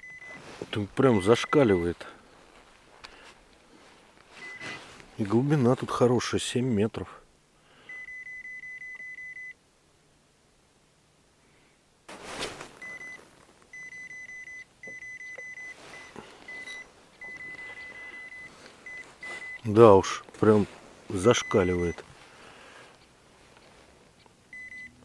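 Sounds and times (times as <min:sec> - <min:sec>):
fish finder alarm beeping: 0:00.0 - 0:00.4, 0:01.1 - 0:02.0, 0:04.4 - 0:04.8, 0:07.9 - 0:09.6, 0:12.8 - 0:20.2, 0:21.3 - 0:22.0, 0:24.5 - 0:25.0
short rustle: 0:00.1 - 0:01.3, 0:02.0 - 0:05.5, 0:12.1 - 0:14.0, 0:15.4 - 0:24.2.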